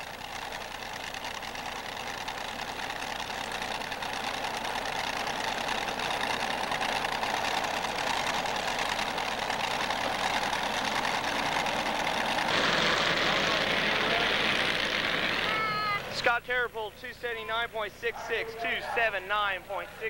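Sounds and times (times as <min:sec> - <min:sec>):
tractor engine idling: 0:00.0 - 0:20.0.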